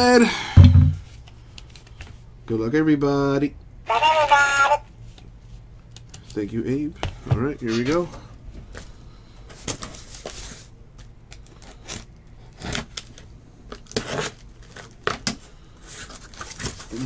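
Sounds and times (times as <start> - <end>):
packaging tearing and rustling: 11.3 - 17.0.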